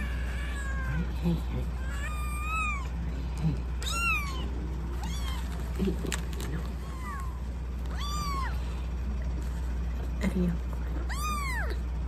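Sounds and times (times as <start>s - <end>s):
kitten mewing: 0.0s - 8.6s, 10.9s - 11.8s.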